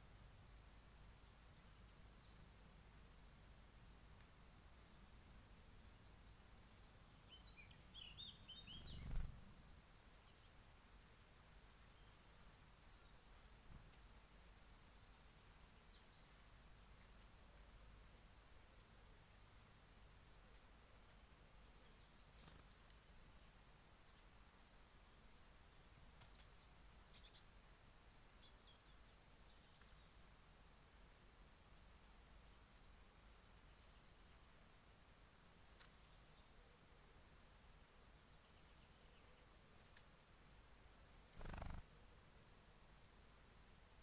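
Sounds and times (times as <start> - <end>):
high bird chirps: 41.4 - 41.8.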